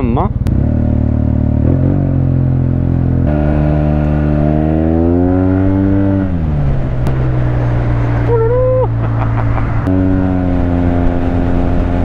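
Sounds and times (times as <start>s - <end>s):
scooter engine accelerating: 0.4s - 12.0s.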